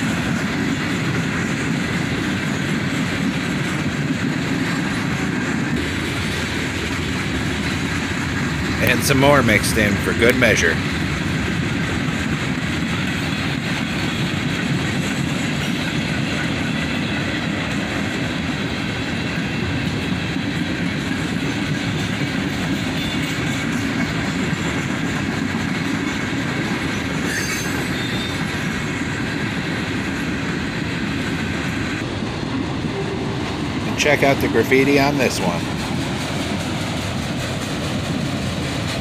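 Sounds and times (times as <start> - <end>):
steel wheels rumbling on rail: 0.0 - 39.0.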